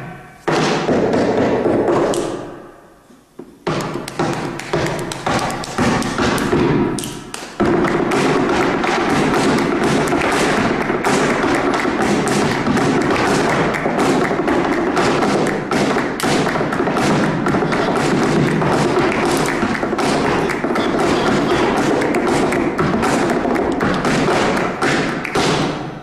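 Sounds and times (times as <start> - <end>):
hand clapping: 2.0 - 2.5, 3.7 - 26.0
dance footwork stamping: 3.4 - 26.0.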